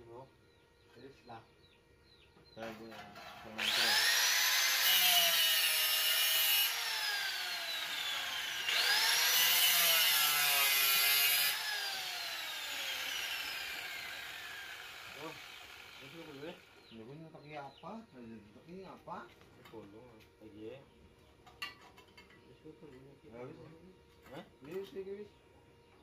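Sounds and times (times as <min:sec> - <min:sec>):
grinder grinding metal: 0:02.7 - 0:17.0
angle grinder whining: 0:02.9 - 0:17.0.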